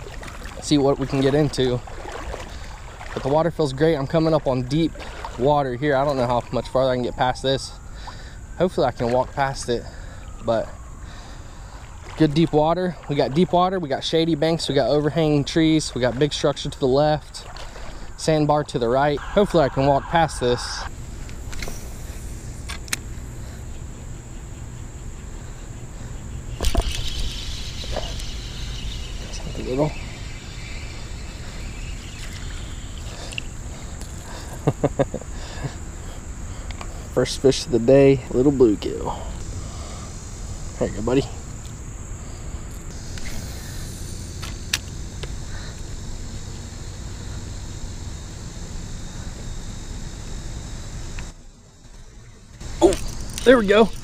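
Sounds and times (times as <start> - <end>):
insects droning: 0.0 - 54.0
fishing reel clicks: 26.6 - 28.3, 52.8 - 54.0.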